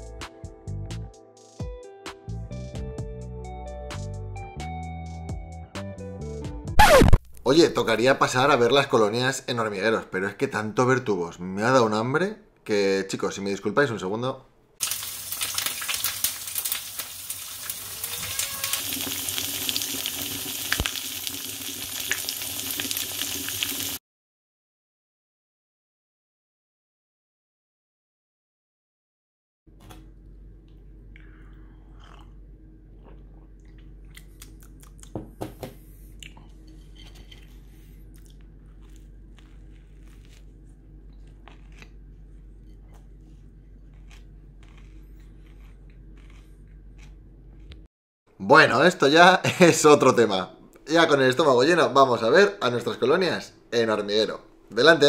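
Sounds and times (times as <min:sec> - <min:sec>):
fat popping: 0:06.8 - 0:07.4
bacon sizzling in frying pan: 0:14.8 - 0:24.0
moka pot gurgling and hissing: 0:18.7 - 0:24.0
person chewing crusty bread: 0:29.7 - 0:35.2, 0:37.4 - 0:47.9
steady low hum: 0:29.7 - 0:47.9.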